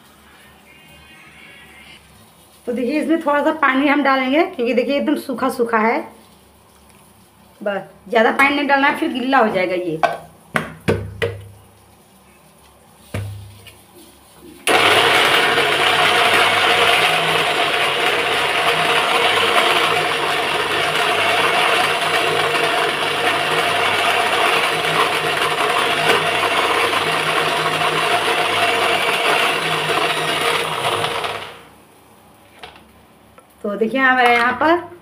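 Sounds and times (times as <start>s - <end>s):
mixer grinder running: 14.7s - 31.7s.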